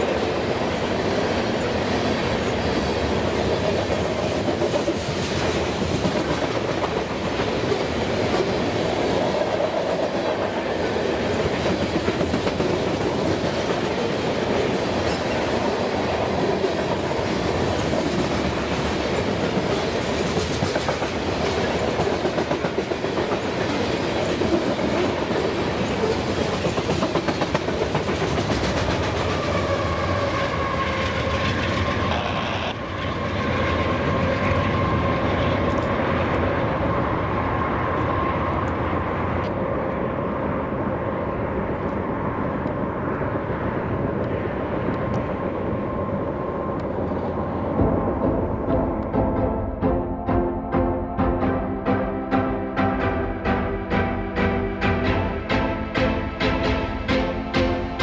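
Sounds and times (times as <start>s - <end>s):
train wheels clattering over rail joints: 16.6s - 29.7s.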